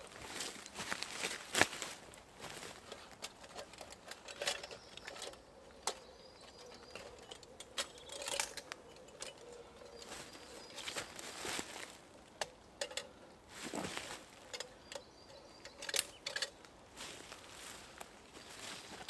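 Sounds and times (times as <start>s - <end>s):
bags and camping gear rustling: 9.4s - 12.1s, 13.5s - 14.5s, 16.9s - 19.0s.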